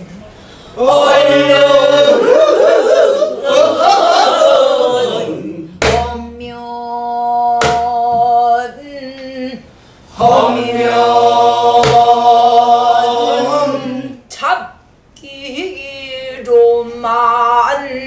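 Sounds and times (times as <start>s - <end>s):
barrel drum strokes: 11.8s - 12.2s.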